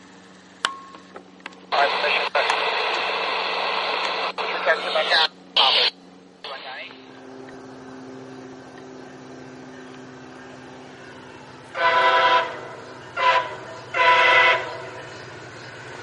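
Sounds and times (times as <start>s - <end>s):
low engine drone: 0.0s - 16.0s
locomotive horn blasts: 11.6s - 15.1s.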